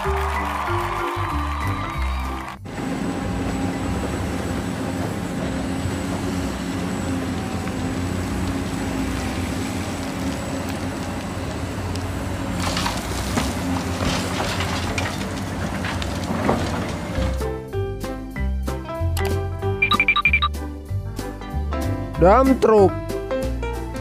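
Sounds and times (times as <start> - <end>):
excavator engine drone: 2.6 - 17.6
rocks and soil clattering: 4.6 - 17.5.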